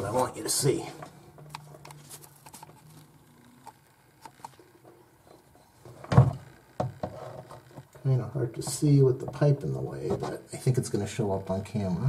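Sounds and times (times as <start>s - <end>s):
camera handling clicks and rubs: 1.5s - 4.6s.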